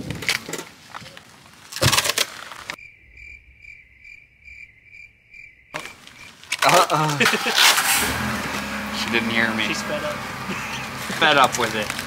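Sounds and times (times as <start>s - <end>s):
cricket chirping sound effect: 2.8s - 6.4s.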